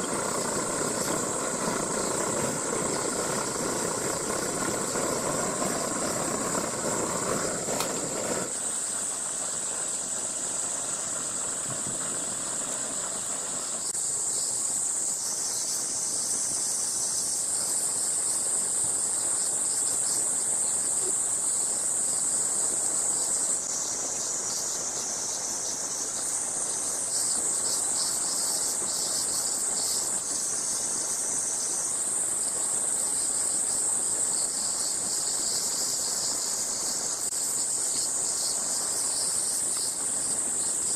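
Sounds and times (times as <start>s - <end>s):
camping stove burner hissing: 0.0s - 40.9s
insect chorus: 0.0s - 40.9s.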